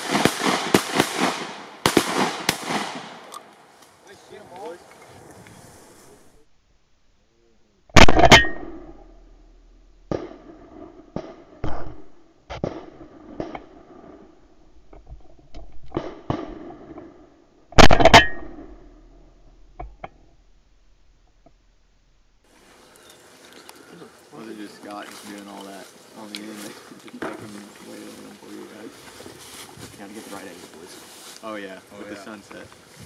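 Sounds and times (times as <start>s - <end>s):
loud shotgun blasts: 0.0s - 3.4s, 8.0s - 8.8s, 17.8s - 18.6s.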